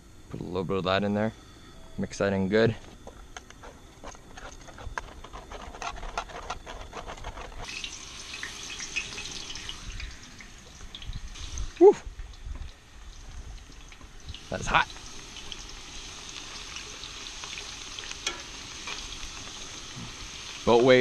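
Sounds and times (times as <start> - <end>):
fries sizzling in hot oil: 7.6 - 21.0.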